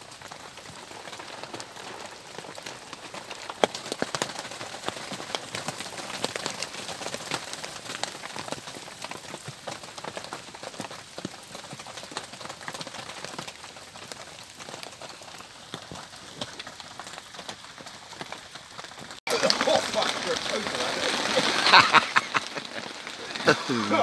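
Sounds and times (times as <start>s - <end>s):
rain patter and hiss: 0.0s - 24.0s.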